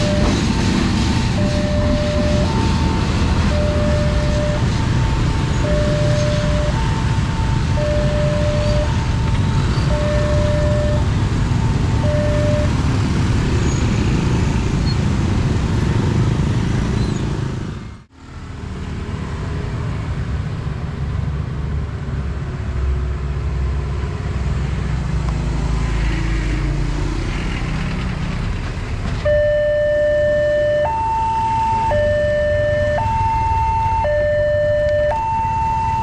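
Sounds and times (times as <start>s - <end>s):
level crossing two-tone alarm: 0.0s - 0.6s, 1.4s - 9.2s, 9.9s - 12.8s, 29.3s - 36.0s
motorcycles passing: 0.0s - 20.5s.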